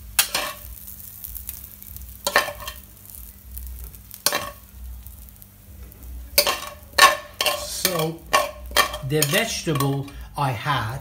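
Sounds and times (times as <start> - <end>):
metal spoon scraping metal pan: 4.2 - 4.6, 6.4 - 10.2.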